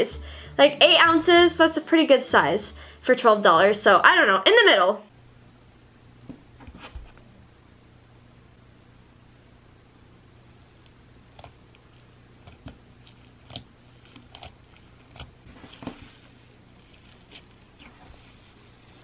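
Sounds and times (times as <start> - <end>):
faint steady hum: 0.0 - 19.0
slime squishing and popping: 10.5 - 18.5.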